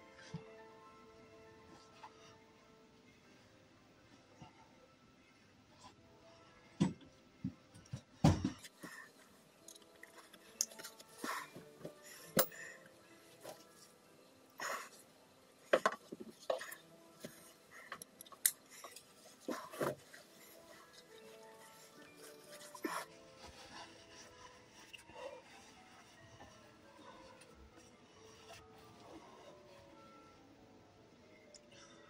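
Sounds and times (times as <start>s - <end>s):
clothing and straps rustling: 15.6s - 30.2s.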